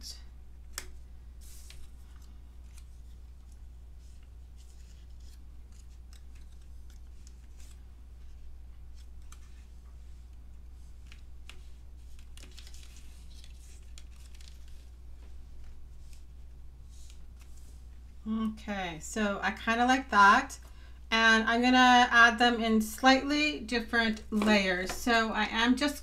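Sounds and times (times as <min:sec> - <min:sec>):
paper rustling and tapping: 0:11.0 - 0:16.3, 0:24.3 - 0:25.2.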